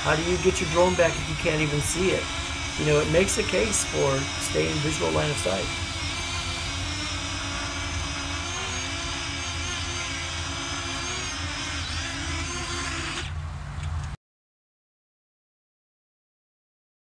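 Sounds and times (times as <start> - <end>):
drone rotors whining: 0.0 - 14.2.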